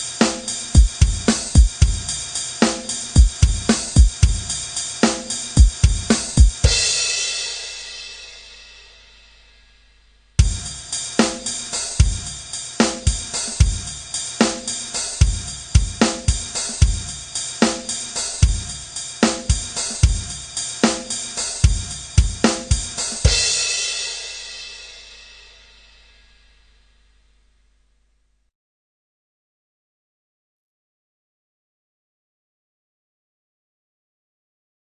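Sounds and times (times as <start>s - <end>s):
drum beat with cymbals: 0.0s - 9.8s, 10.4s - 26.8s.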